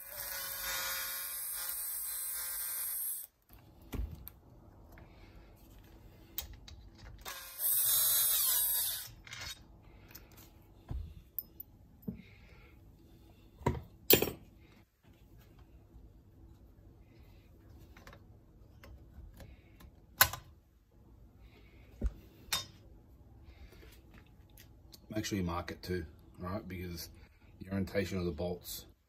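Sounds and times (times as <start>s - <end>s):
cordless drill running: 0.0s - 3.3s, 7.2s - 9.2s.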